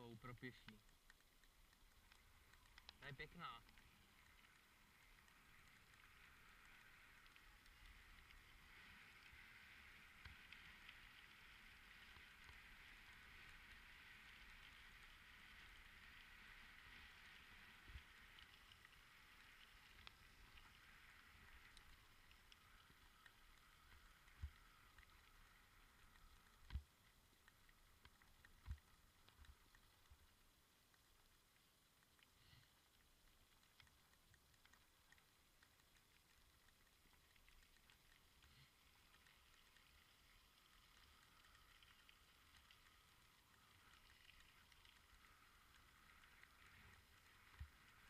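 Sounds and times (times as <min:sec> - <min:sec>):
bicycle tyres hissing on trail: 0:03.0 - 0:25.9.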